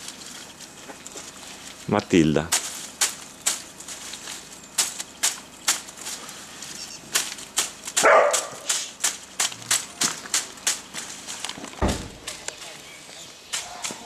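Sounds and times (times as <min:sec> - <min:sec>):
sickle clicking through leafy twigs: 0:00.0 - 0:14.0.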